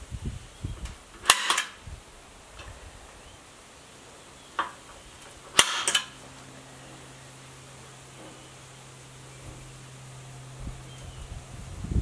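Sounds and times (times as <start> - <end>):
metal hinge clacking: 1.2 - 1.8, 5.5 - 6.2.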